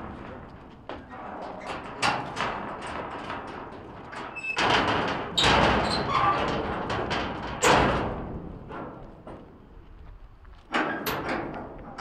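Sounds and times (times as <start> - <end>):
metal gate banging shut: 1.0 - 8.9, 10.7 - 12.0
metal squeak: 4.3 - 4.7, 5.4 - 6.6.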